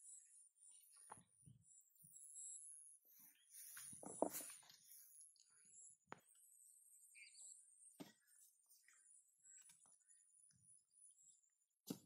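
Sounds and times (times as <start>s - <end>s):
faint chirp: 0.0s - 12.0s.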